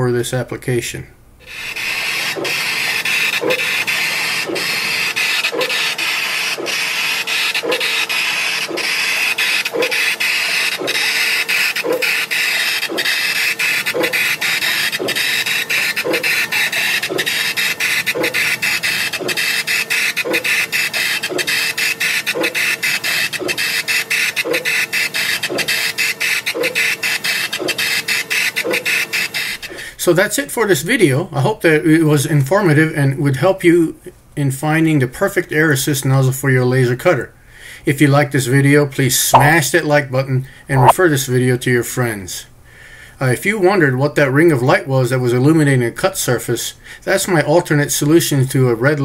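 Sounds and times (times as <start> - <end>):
laser cutter motor tone: 1.4 - 29.6
air pump running: 1.4 - 29.9.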